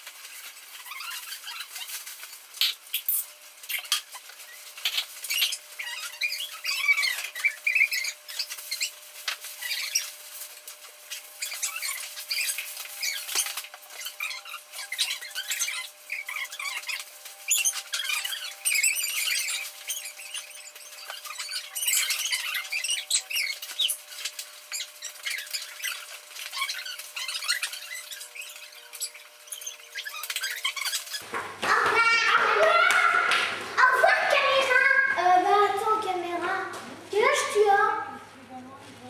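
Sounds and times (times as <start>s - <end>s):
high chirps and squeaks: 0.1s - 31.2s.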